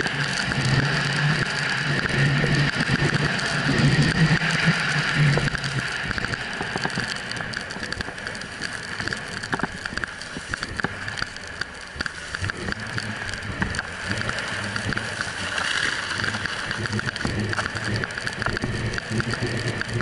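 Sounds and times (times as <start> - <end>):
small clicks and knocks: 0.0 - 20.0
snowboard scraping on snow: 14.0 - 17.8.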